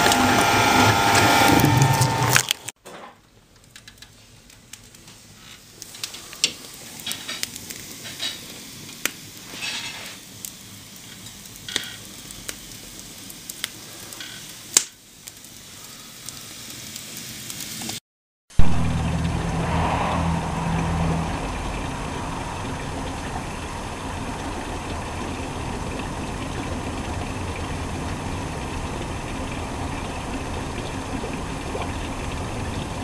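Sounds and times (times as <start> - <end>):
wood fire crackling and popping: 1.5 - 18.0.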